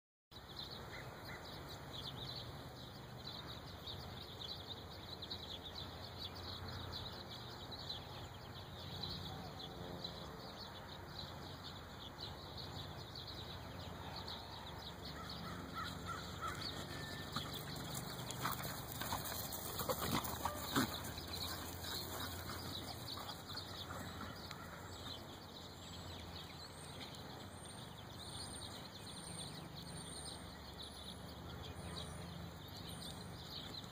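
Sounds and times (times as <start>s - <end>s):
birds calling: 14.3s - 33.9s.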